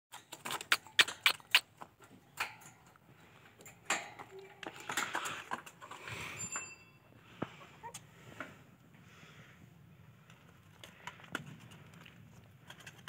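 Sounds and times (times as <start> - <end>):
sharp clicks and taps: 0.4 - 1.9.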